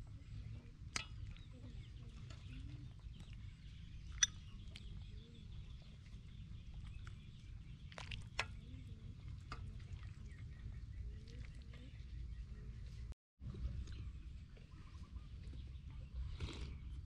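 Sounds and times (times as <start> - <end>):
faint birds chirping: 0.0 - 17.0.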